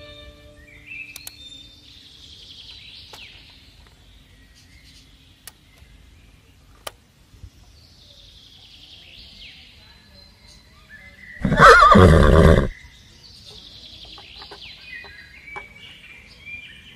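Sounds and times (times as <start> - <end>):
birds chirping: 0.0 - 16.9.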